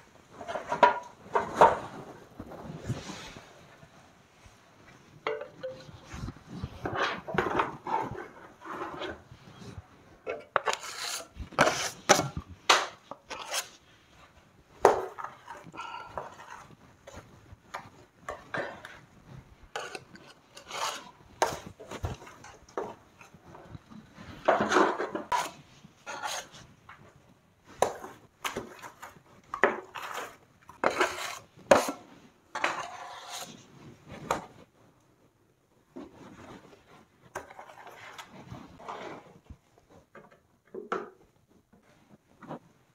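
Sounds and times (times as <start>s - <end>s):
trowel scraping plaster: 10.4s - 12.4s, 13.0s - 13.8s, 19.7s - 22.6s, 24.5s - 26.6s, 29.7s - 33.6s.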